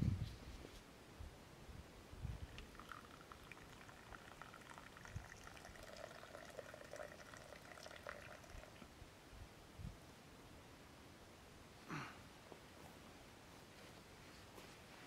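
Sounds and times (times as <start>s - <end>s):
liquid trickling into a cup: 2.4s - 8.9s.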